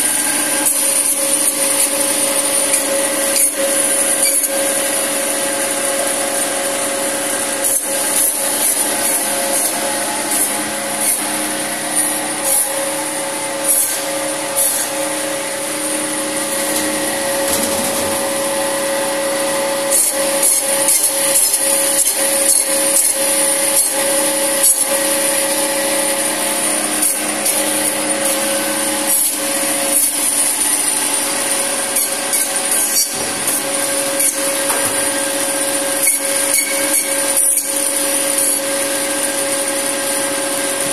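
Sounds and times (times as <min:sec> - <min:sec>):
meat band saw humming and whining: 0:00.0 - 0:40.9
saw blade rasping through bone: 0:19.9 - 0:25.0, 0:31.9 - 0:34.6, 0:36.0 - 0:37.8.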